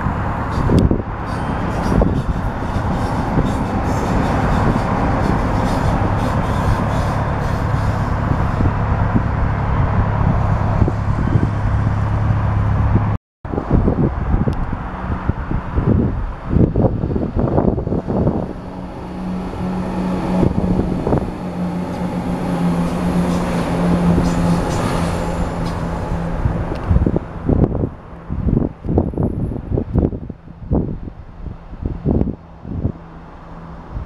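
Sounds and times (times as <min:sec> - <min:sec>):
train passing with rumbling wheels: 0:00.0 - 0:34.0
wind buffeting microphone: 0:00.0 - 0:34.0.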